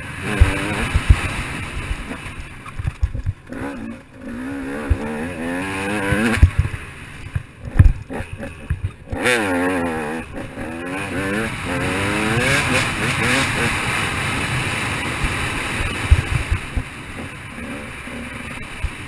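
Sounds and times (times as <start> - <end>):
dirt bike engine revving: 0.0 - 19.0
low thumps: 0.3 - 3.6, 6.0 - 9.3.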